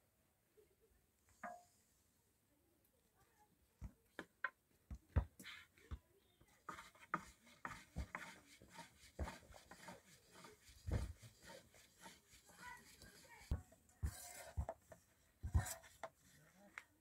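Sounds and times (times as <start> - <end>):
objects knocked and rubbed: 6.6 - 16.6.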